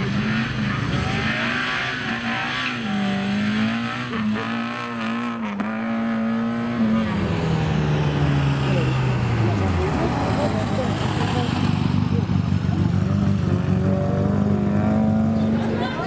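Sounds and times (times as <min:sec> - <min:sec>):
race car engine high revs: 0:00.0 - 0:07.1.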